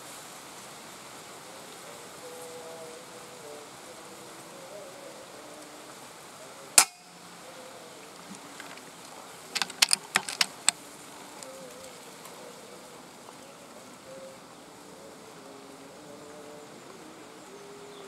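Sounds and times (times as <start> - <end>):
doves cooing: 1.3 - 18.0
sharp metallic clicks: 6.8 - 7.1, 9.5 - 10.8.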